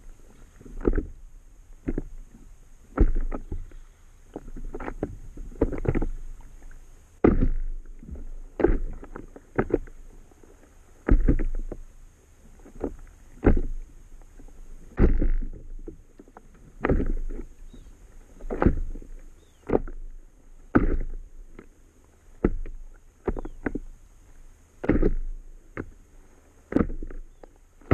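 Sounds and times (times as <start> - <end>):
small waves slapping a hull: 0.0 - 27.9.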